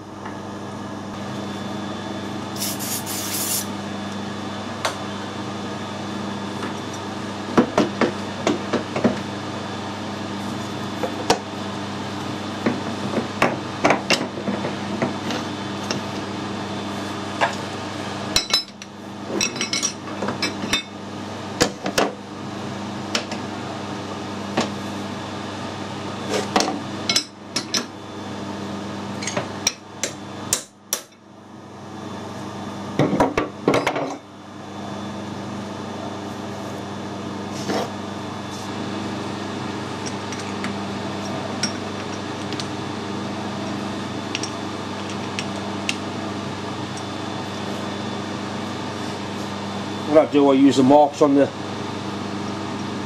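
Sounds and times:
steady hum: 0.0 - 7.6.

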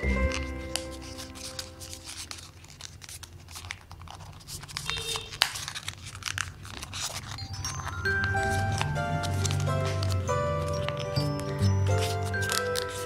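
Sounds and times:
background music: 0.0 - 2.2, 7.4 - 13.0
paper crinkling and crackling: 0.0 - 13.0.

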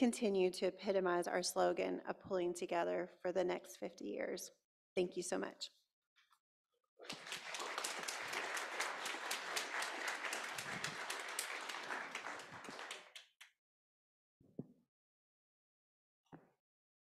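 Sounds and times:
congregation applauding: 7.0 - 13.4.

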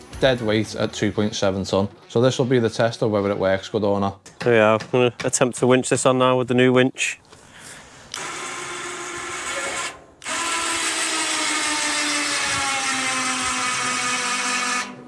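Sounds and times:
electric winch motor: 8.1 - 15.0.

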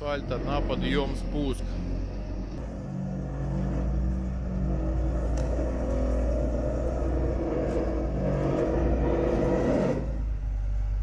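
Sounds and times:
wheel loader diesel engine: 0.0 - 11.0.

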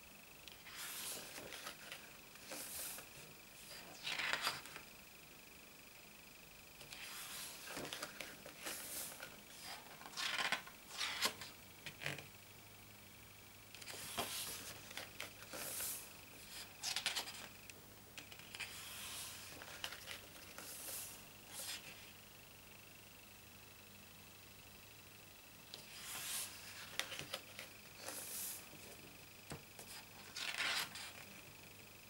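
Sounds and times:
pages turning and rustling: 0.6 - 4.8, 6.8 - 12.2, 13.8 - 17.5, 18.2 - 22.0, 25.8 - 29.0, 29.8 - 31.3.

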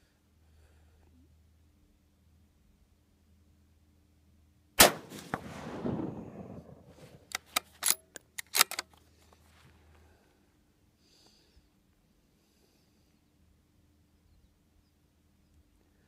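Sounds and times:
rifle shot with echo: 4.8 - 8.0
rifle bolt metallic clicks: 7.3 - 9.0.

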